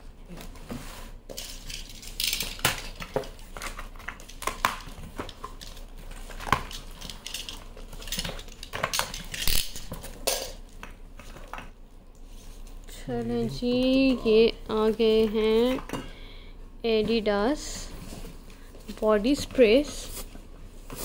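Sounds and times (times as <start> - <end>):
hard items clinking: 1.3 - 11.7.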